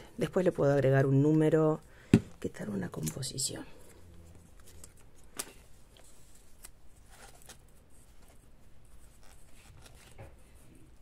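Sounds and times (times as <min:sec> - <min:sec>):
paper rustling: 0:04.5 - 0:11.0.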